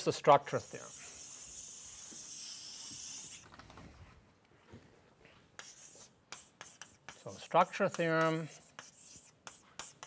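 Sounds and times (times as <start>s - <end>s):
chalk scratching on blackboard: 0.4s - 3.4s, 5.6s - 10.0s
chalk taps: 5.6s - 10.0s.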